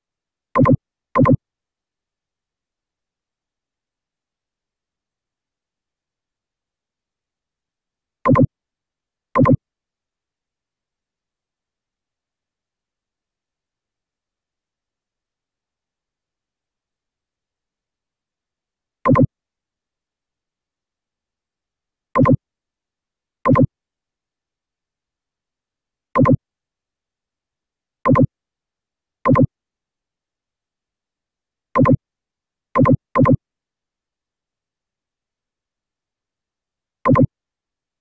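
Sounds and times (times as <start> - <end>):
synthetic mouse click pops: 0.6 - 1.4, 8.3 - 8.5, 9.4 - 9.6, 19.1 - 19.3, 22.2 - 22.4, 23.5 - 23.7, 26.2 - 26.4, 28.1 - 28.3, 29.3 - 29.5, 31.8 - 32.0, 32.8 - 33.4, 37.1 - 37.3.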